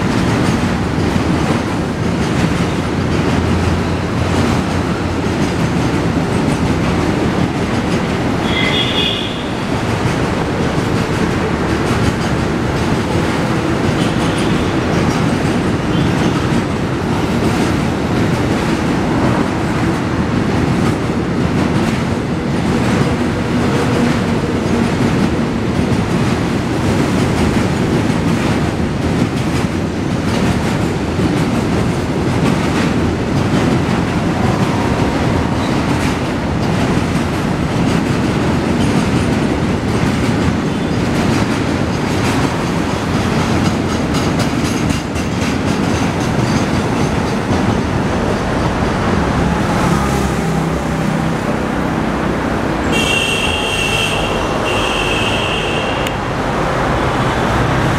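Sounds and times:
wheels clacking over rail joints: 0.0 - 53.6
freight train rumble: 0.0 - 57.9.

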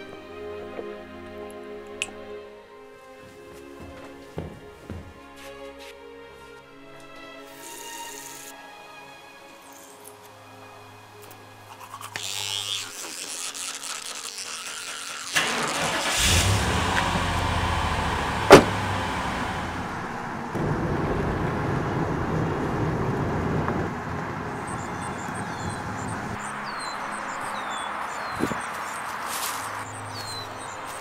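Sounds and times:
car engine running: 15.4 - 26.4
birds chirping falling calls: 24.5 - 31.0.

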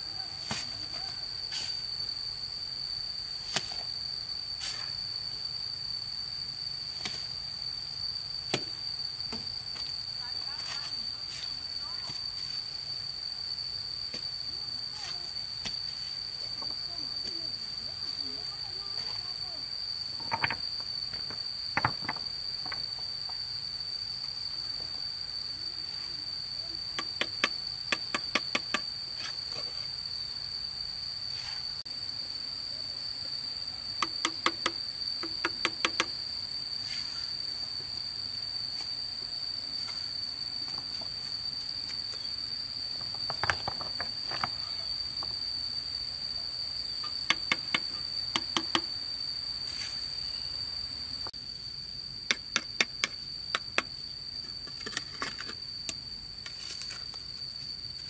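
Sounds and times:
insect drone: 0.0 - 58.0.

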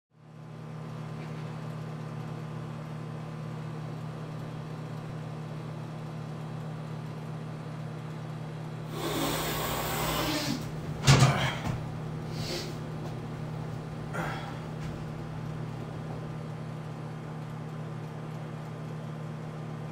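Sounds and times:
steady low hum: 0.2 - 19.9
person sniffing: 8.9 - 10.7, 12.3 - 12.8
person snorting powder: 8.9 - 10.7, 12.3 - 12.8.

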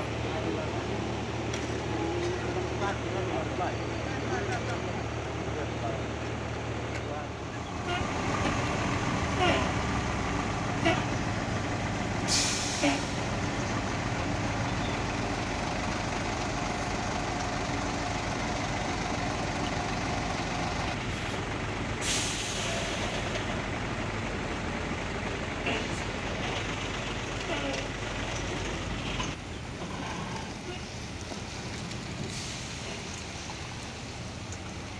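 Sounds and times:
diesel engines idling: 0.0 - 34.9
air brakes hissing: 12.2 - 13.3, 22.0 - 23.5, 32.2 - 33.5.

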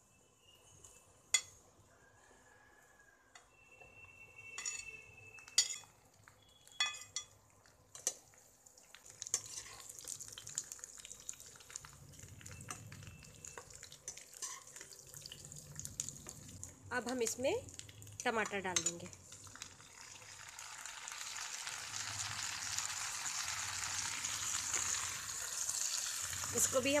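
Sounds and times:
eggplant sizzling in oil: 5.2 - 27.0
stirring clicks and scrapes: 9.2 - 9.9
metal spoon scraping a bowl: 9.3 - 9.9, 14.4 - 14.7.

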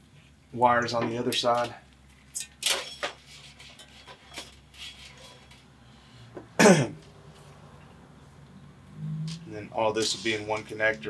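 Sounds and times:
man coughing loudly: 6.6 - 7.0.

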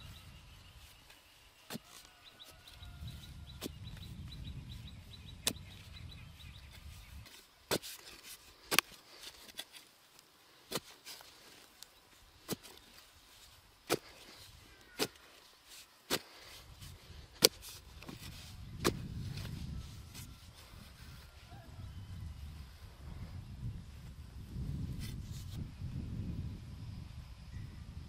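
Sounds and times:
metal hoe chopping stony soil: 1.6 - 2.8, 5.3 - 5.9, 6.7 - 20.3.

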